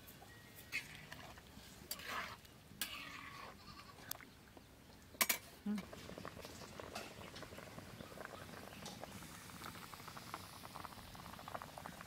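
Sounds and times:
water boiling with small pops: 0:04.0 - 0:12.0.

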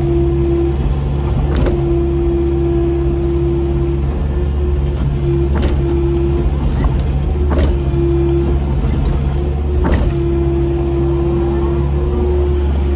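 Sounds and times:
diesel engine running: 0:00.0 - 0:12.9
sharp knocks: 0:05.0 - 0:10.4.

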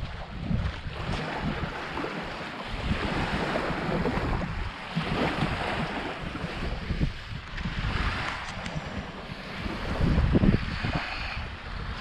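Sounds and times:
small waves breaking on beach: 0:00.0 - 0:12.0
wind buffeting microphone: 0:00.0 - 0:12.0.

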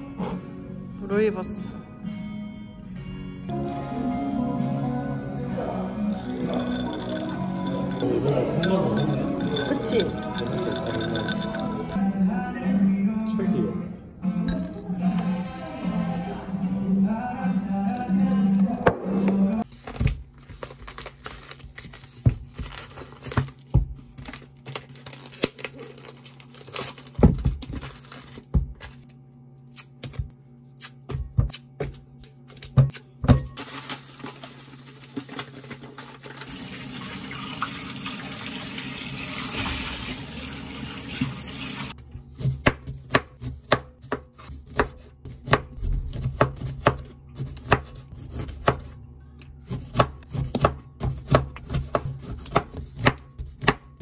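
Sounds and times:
tap water running into bowl: 0:36.2 - 0:42.0.

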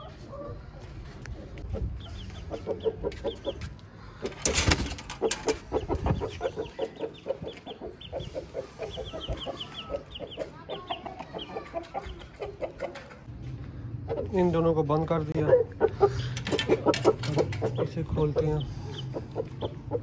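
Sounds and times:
chickens clucking: 0:00.0 - 0:20.0
loud rattle: 0:04.3 - 0:05.6.

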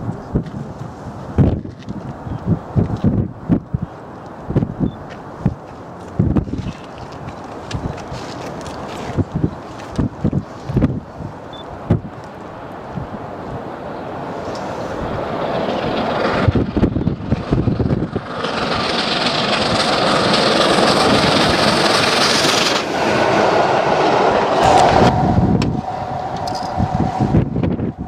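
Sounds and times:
steam locomotive passing: 0:12.5 - 0:28.0
wheels on rails: 0:14.4 - 0:28.0.

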